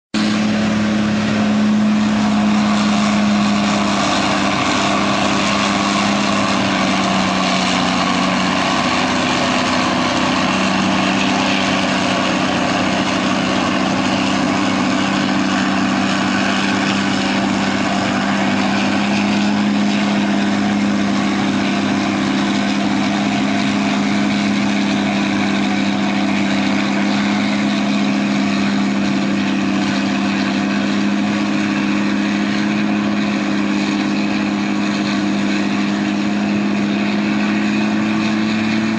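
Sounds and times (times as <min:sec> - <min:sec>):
diesel engine drone: 0:00.1 - 0:38.9.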